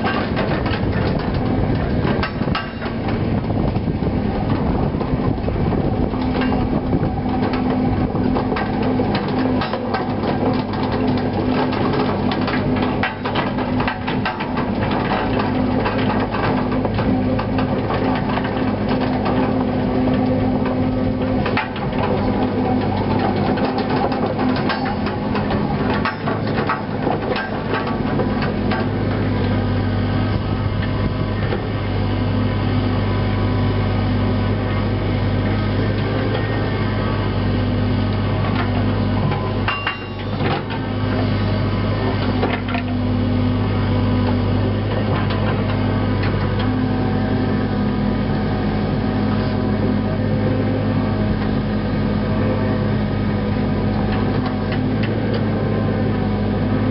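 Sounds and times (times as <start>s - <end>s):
machine knocks and clanks: 0.0s - 31.8s, 38.2s - 43.1s, 44.0s - 47.6s
excavator diesel engine running: 0.0s - 56.9s.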